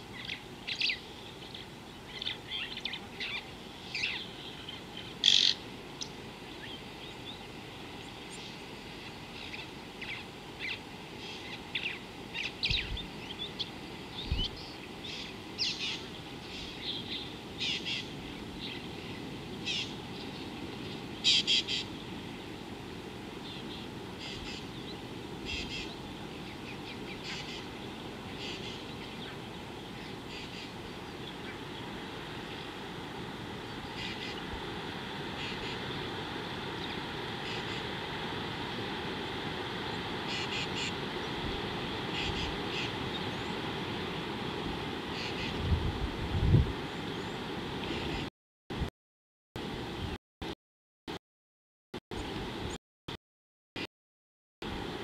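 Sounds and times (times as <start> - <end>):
birds chirping: 0.1 - 22.2, 33.6 - 34.4.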